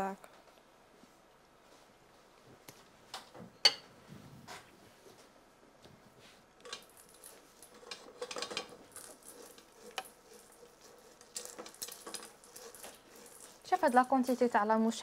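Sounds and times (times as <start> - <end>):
wooden spoon scraping saucepan: 6.7 - 15.0.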